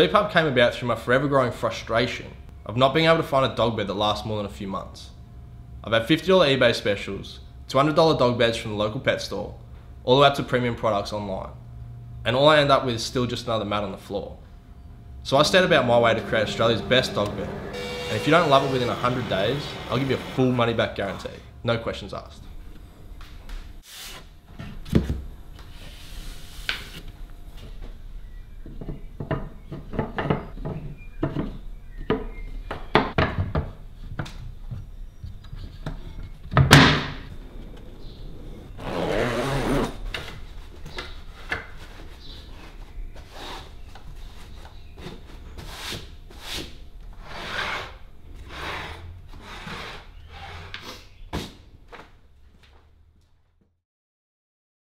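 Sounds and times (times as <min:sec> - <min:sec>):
zip being pulled: 0:38.3 - 0:40.0.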